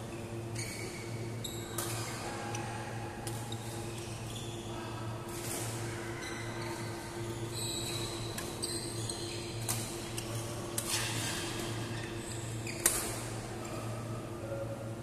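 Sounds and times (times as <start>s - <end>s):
shoes squeaking on court floor: 3.5s - 4.7s, 6.3s - 13.1s.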